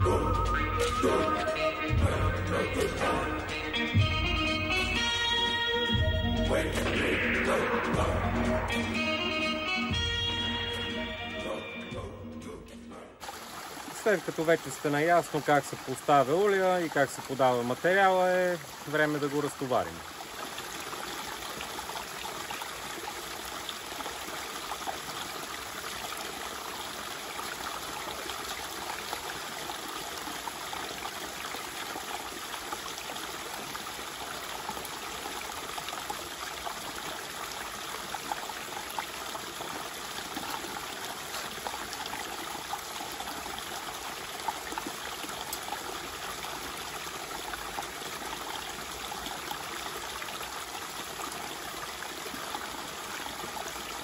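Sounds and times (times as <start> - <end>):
small water splashes: 13.2 - 54.0
stream running over stones: 13.2 - 54.0.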